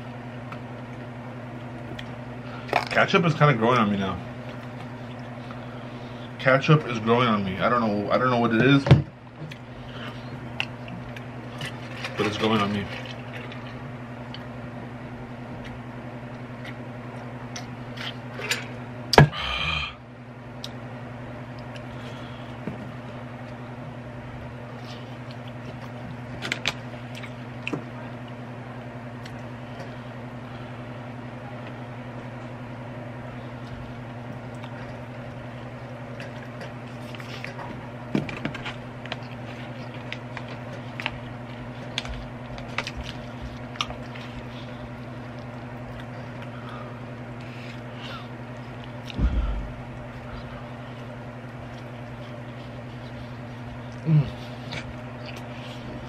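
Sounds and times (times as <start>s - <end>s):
electrical hum: 0.0s - 56.0s
burger squishing: 33.6s - 56.0s.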